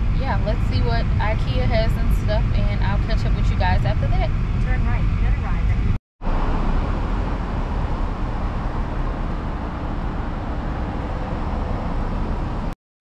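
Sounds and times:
car road and engine noise: 0.0s - 12.8s.

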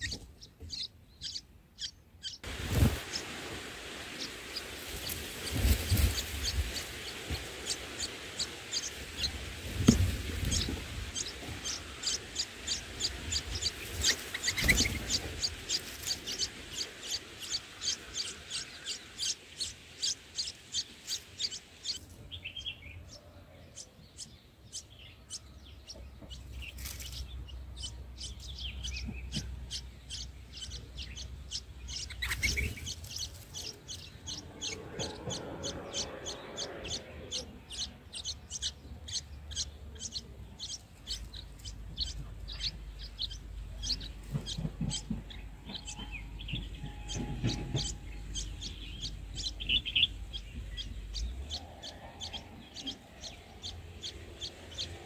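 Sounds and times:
nestlings chirping: 0.0s - 55.0s
low rumble: 25.8s - 55.0s.

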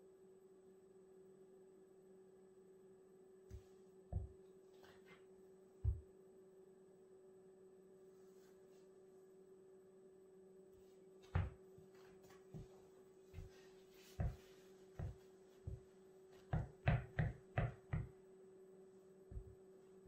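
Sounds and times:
faint steady hum: 0.0s - 20.0s
footsteps on wooden floor: 4.1s - 4.4s, 11.2s - 16.7s.

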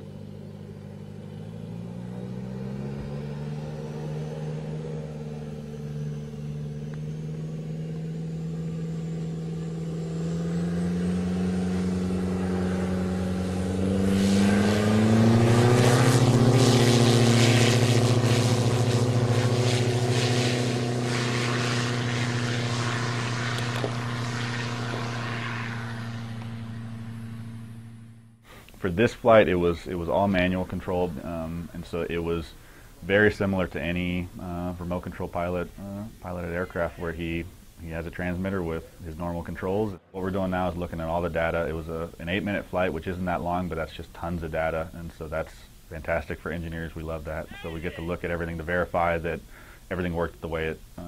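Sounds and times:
aircraft engine at takeoff power: 0.0s - 28.9s.

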